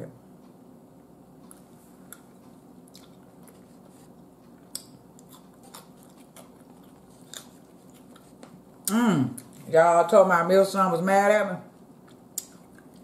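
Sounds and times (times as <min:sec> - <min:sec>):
low steady hum: 0:00.0 - 0:13.0
person chewing food: 0:01.4 - 0:09.7, 0:11.8 - 0:13.0.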